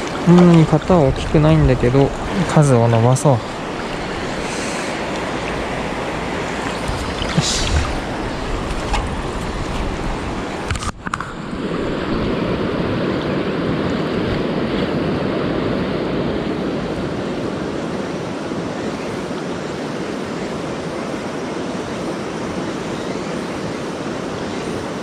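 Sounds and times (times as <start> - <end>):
river rushing over rocks: 0.0 - 18.5.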